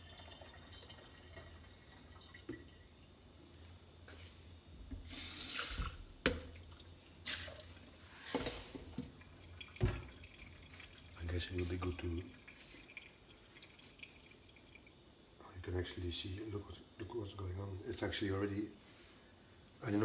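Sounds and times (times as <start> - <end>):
kitchen tap running: 0.0 - 3.1, 4.9 - 8.0, 8.7 - 15.0.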